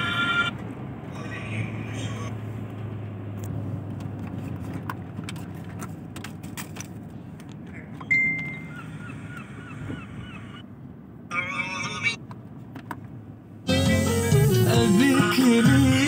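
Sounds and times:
car road and engine noise: 0:00.0 - 0:16.0
short high beep: 0:08.1 - 0:08.7.

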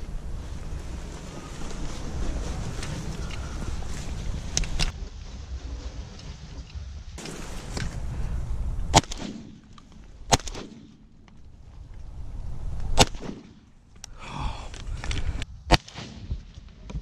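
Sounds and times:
shotgun blasts with echo: 0:08.9 - 0:11.1, 0:13.0 - 0:13.7, 0:15.7 - 0:16.6.

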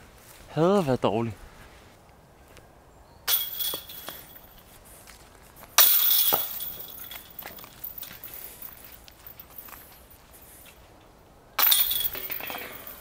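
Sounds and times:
discs striking metal chains: 0:03.3 - 0:04.5, 0:05.8 - 0:10.2, 0:11.6 - 0:13.0.

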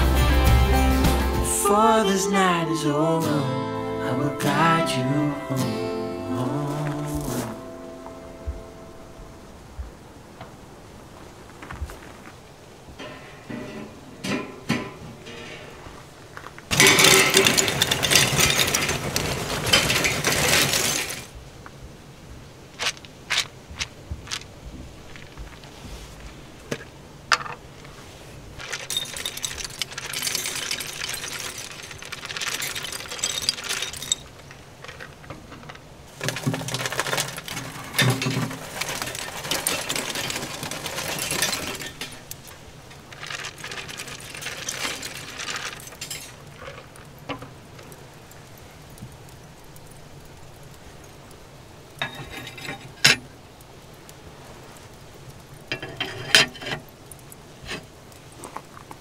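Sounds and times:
charcoal clattering into metal basket: 0:13.0 - 0:15.8, 0:16.7 - 0:21.3, 0:28.6 - 0:48.9, 0:52.0 - 0:53.3, 0:55.7 - 0:57.9
pellets pattering onto charcoal: 0:13.0 - 0:21.4, 0:22.8 - 0:59.0.

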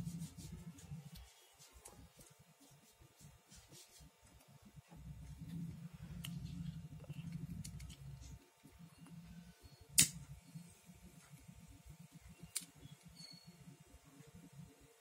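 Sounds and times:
lighter clicking: 0:10.0 - 0:10.2.

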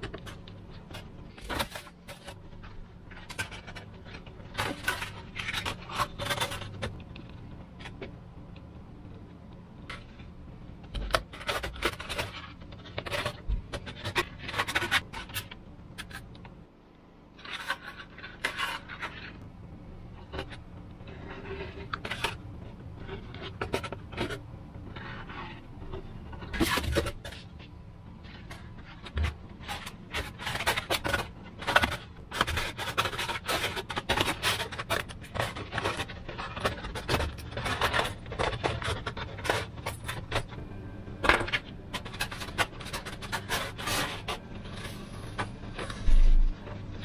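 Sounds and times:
foam scraping and rubbing: 0:20.4 - 0:27.6, 0:41.5 - 0:47.0.

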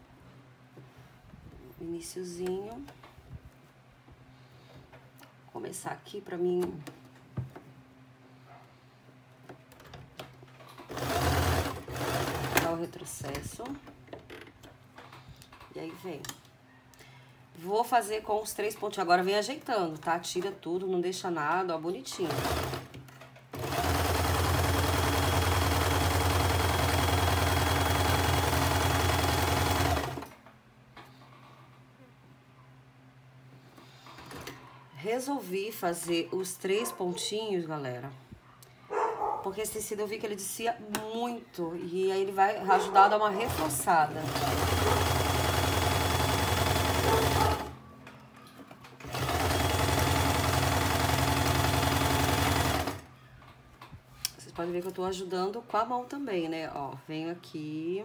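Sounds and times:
sewing machine running: 0:10.9 - 0:12.8, 0:22.3 - 0:30.3, 0:43.5 - 0:47.8, 0:49.0 - 0:53.1.

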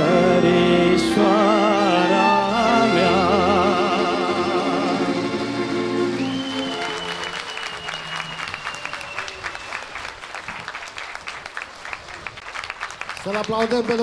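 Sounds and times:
audience applauding: 0:05.8 - 0:14.0.

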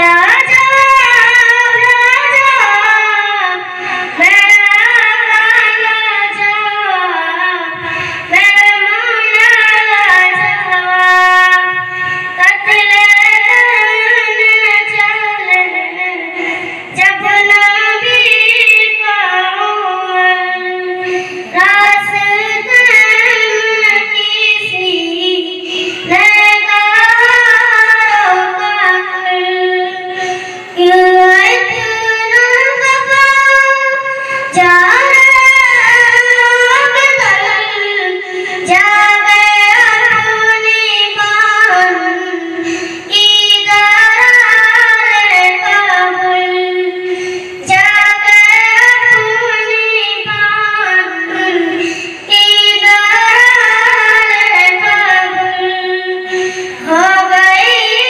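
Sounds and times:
girl singing devotional song: 0:00.0 - 0:58.0.

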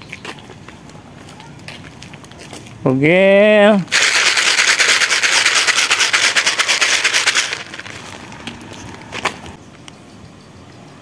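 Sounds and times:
food container rattling: 0:03.9 - 0:09.6.

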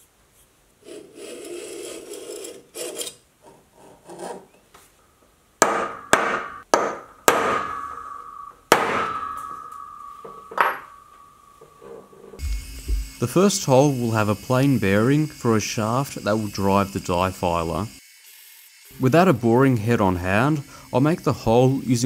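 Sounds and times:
hammer striking centre punch: 0:05.6 - 0:11.1
steel bar ringing: 0:05.7 - 0:13.1.

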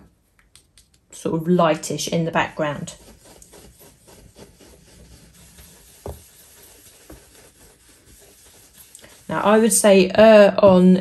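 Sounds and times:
brush rubbing through stencil: 0:02.0 - 0:10.5.

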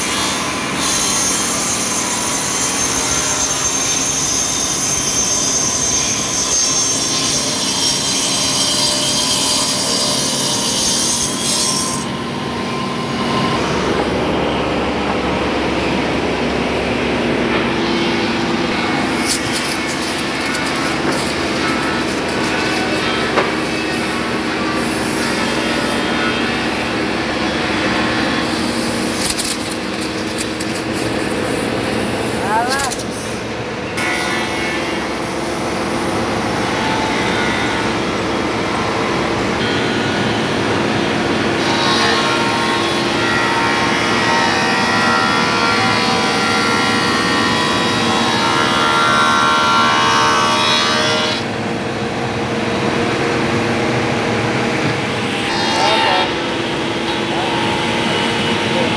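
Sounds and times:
sawmill machine cutting wood: 0:00.0 - 0:58.9
bandsaw cutting wood: 0:17.5 - 0:33.2, 0:54.8 - 0:58.9.

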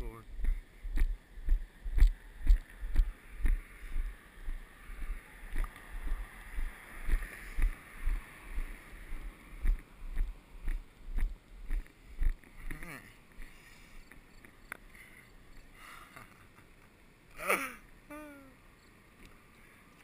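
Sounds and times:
car tyre hiss passing: 0:03.0 - 0:10.5.

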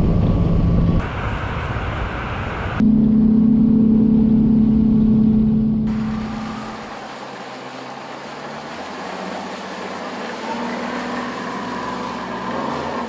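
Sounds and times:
rushing wind: 0:00.0 - 0:03.3
outboard motor drone: 0:00.0 - 0:13.0
water noise: 0:00.0 - 0:13.0.

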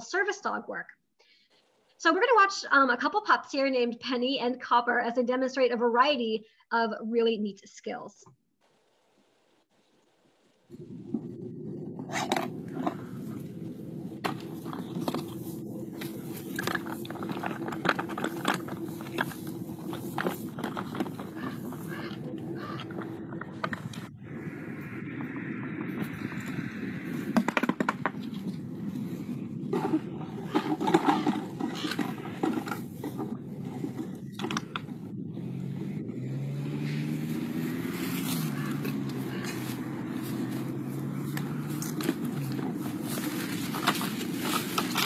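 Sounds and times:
low motor hum: 0:10.7 - 0:45.0
dogs chewing: 0:11.6 - 0:23.1.

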